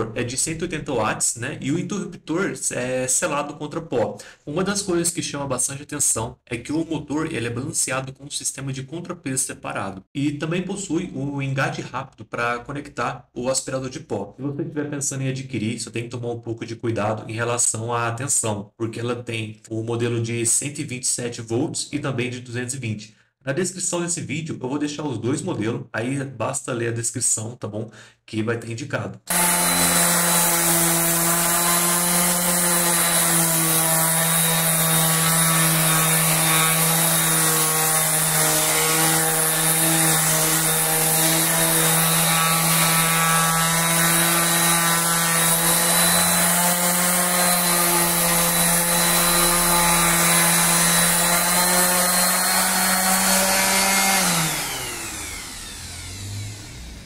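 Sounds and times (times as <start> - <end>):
orbital sander sanding wood: 29.3 - 57.0
sander winding down: 29.3 - 57.0.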